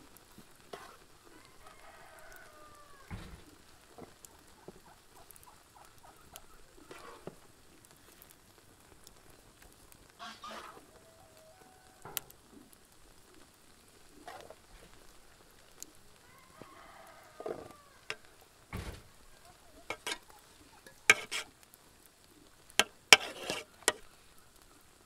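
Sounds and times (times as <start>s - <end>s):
faint bird calls: 1.2s - 8.3s, 10.2s - 22.7s.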